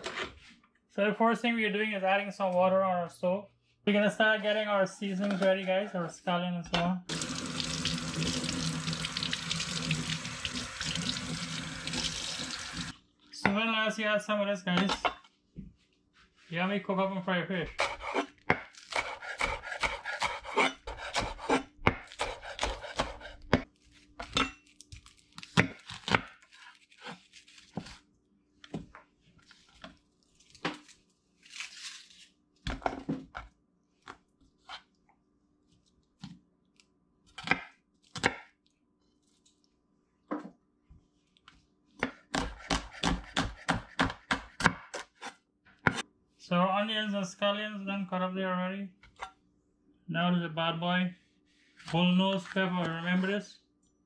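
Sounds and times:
knife chopping on wooden board: 0:17.7 - 0:23.7, 0:37.4 - 0:38.5, 0:42.0 - 0:45.1, 0:45.8 - 0:46.0.

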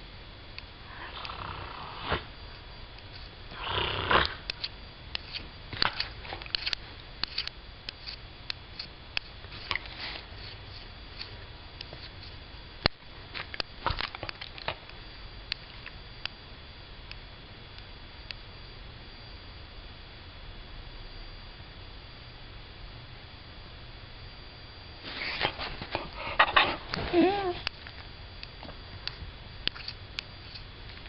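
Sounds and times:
dog sniffing: 0:25.1 - 0:27.4
dog snorting: 0:25.1 - 0:27.5.

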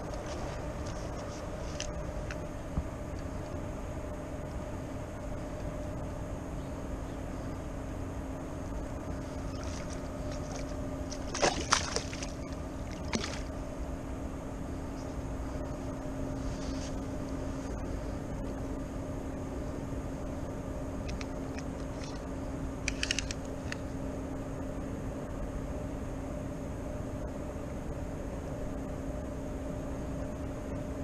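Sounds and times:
low steady hum: 0:00.0 - 0:31.0
flowing river water: 0:09.3 - 0:13.6.

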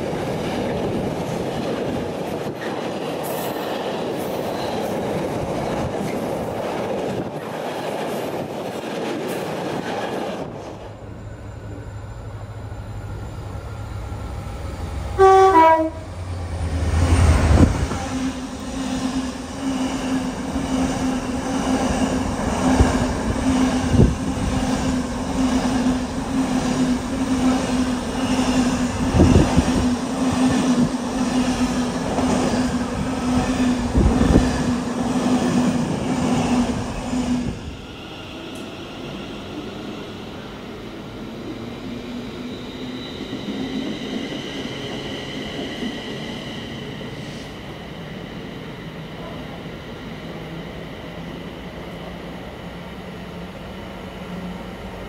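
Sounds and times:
freight train running past: 0:00.0 - 0:55.0
locomotive horn blast: 0:15.2 - 0:16.1.

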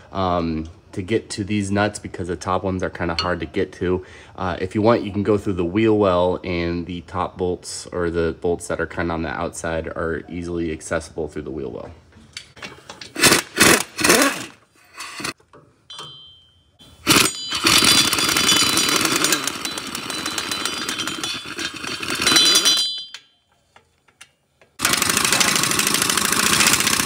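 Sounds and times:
impact wrench hammering: 0:15.1 - 0:23.3.

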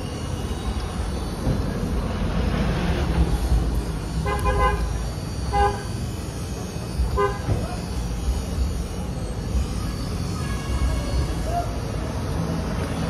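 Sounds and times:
vehicle horn tooting: 0:04.2 - 0:04.8, 0:05.5 - 0:05.9, 0:07.1 - 0:07.6.

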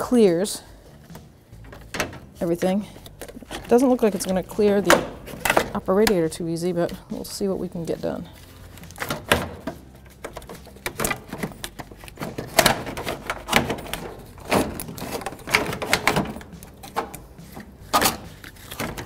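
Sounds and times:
plastic knocks and rattles: 0:01.1 - 0:02.4, 0:03.1 - 0:06.2, 0:08.8 - 0:17.2.

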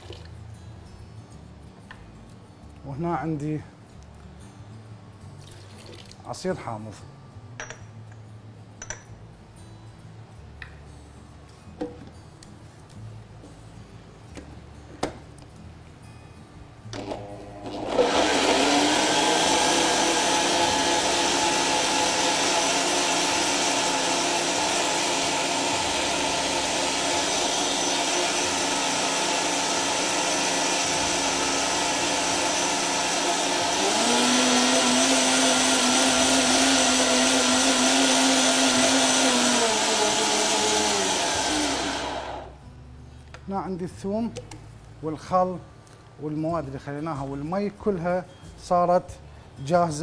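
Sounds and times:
electric blender running: 0:17.0 - 0:42.6.

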